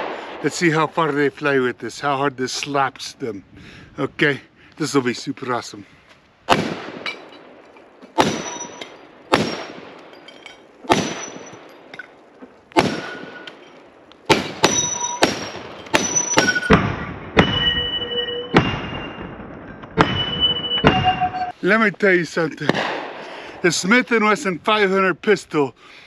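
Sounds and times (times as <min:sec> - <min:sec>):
rifle shots: 0:06.5 - 0:07.6, 0:08.2 - 0:10.2, 0:10.8 - 0:11.9, 0:12.7 - 0:13.6, 0:14.3 - 0:21.3, 0:22.7 - 0:23.3
metallic ring of steel targets: 0:08.2 - 0:12.2, 0:14.6 - 0:21.6.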